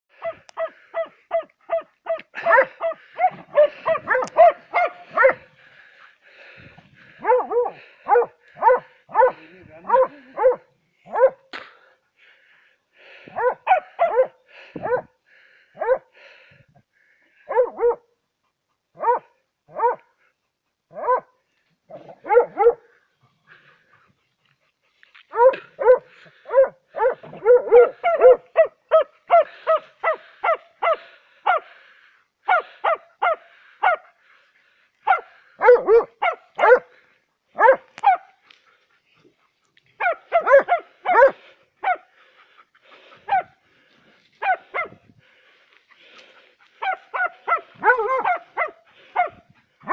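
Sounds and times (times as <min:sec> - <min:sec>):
dogs barking: 0:00.1 - 0:06.0, 0:07.1 - 0:11.5, 0:13.2 - 0:15.1, 0:15.7 - 0:16.2, 0:17.4 - 0:18.1, 0:18.9 - 0:20.2, 0:20.9 - 0:23.0, 0:25.2 - 0:34.2, 0:35.0 - 0:43.7, 0:44.4 - 0:45.0, 0:46.0 - 0:49.9.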